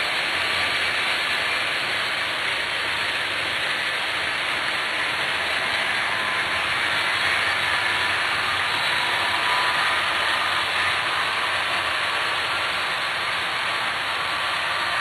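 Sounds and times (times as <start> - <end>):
model train motors whirring: 0.0 - 15.0
wheels on track: 0.0 - 15.0.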